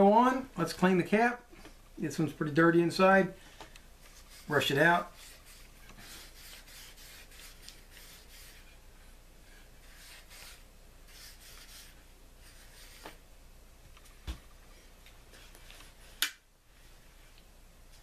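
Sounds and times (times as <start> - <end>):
brush scrubbing: 4.1 - 8.8, 9.6 - 13.2.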